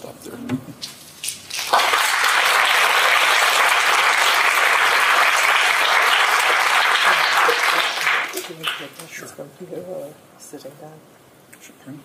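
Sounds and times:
audience applauding: 1.5s - 9.0s.

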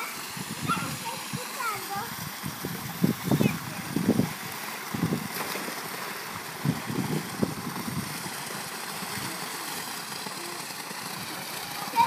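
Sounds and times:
pool water and fountain hissing: 0.0s - 12.0s
water sloshing: 3.1s - 12.0s.

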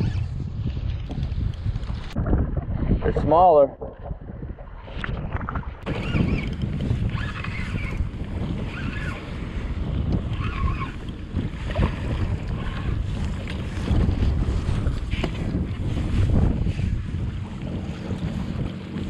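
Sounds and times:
wind buffeting microphone: 0.0s - 19.0s
waves splashing against kayak: 2.4s - 19.0s.

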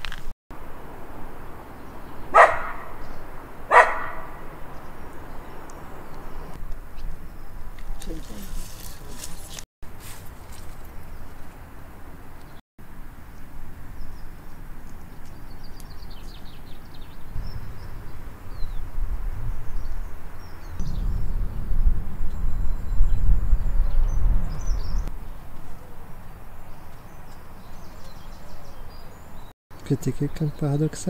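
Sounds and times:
small birds chirping: 13.3s - 21.6s, 22.3s - 31.0s
low rumble: 20.8s - 25.1s.

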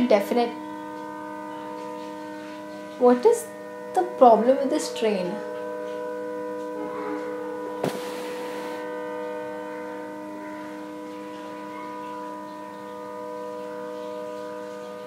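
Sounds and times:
train horn blast: 5.9s - 11.0s.

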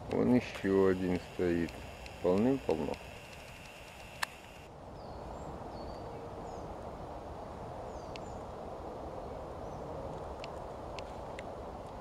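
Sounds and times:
steady outdoor noise: 0.0s - 12.0s
sharp click: 1.6s - 4.7s.

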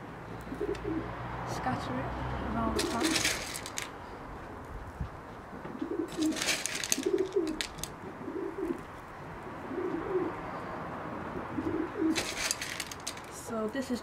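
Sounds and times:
pigeon cooing: 0.4s - 1.1s, 2.8s - 3.6s, 5.7s - 8.9s, 9.5s - 12.8s
gravel stones clicking: 2.8s - 4.0s, 6.1s - 8.0s, 12.1s - 13.5s.

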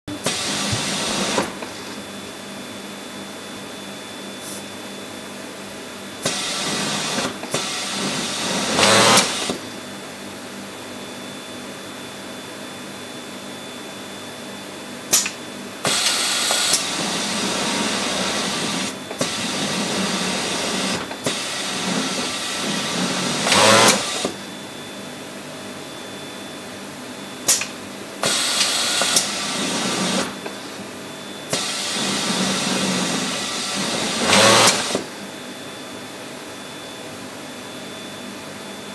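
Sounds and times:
overlock sewing machine stitching: 6.3s - 9.6s, 15.9s - 24.3s, 31.6s - 35.1s.

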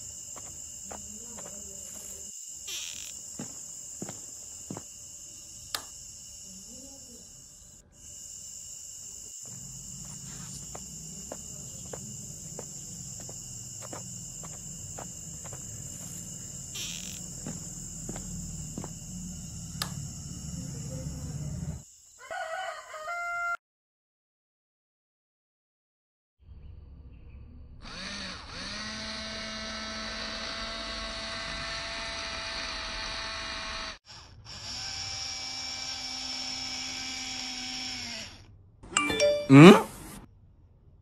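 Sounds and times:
crickets chirring: 0.0s - 23.5s.

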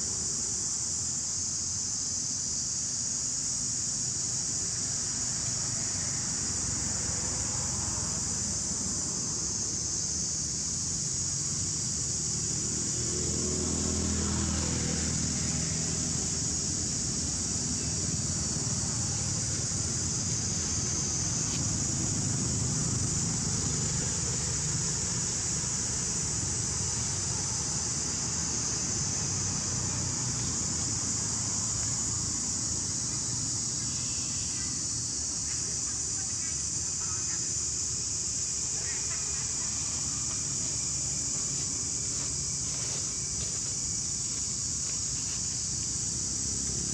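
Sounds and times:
high-pitched insect drone: 0.0s - 46.9s
motor vehicle passing: 12.4s - 32.4s.

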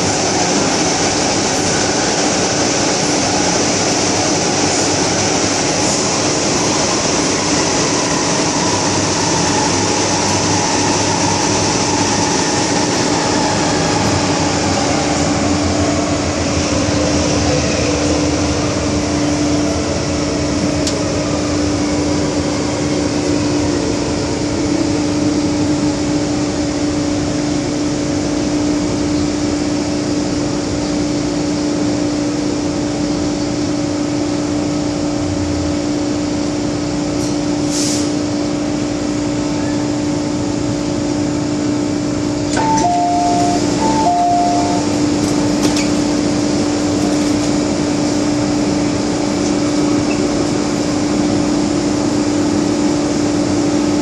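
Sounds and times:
train carriage rumble and hiss: 0.0s - 54.0s
train motor whine: 42.5s - 51.0s.

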